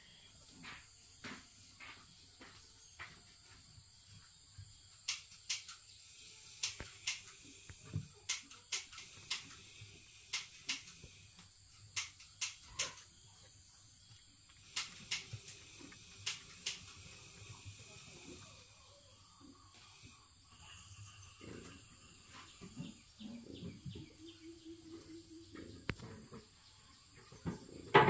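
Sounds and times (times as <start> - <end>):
baby monkey sucking bottle: 14.6 - 18.8
faint high hiss: 14.6 - 21.7.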